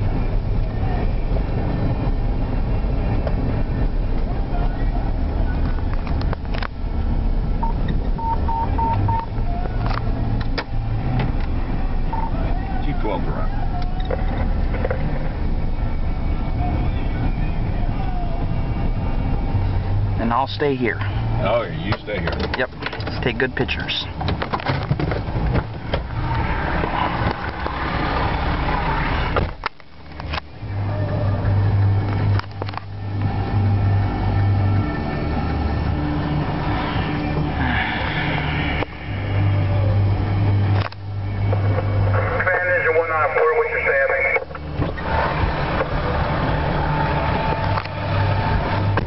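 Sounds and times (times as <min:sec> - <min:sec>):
vehicle engine and road rumble: 0:00.0 - 0:49.0
short electronic beeps: 0:07.6 - 0:09.3.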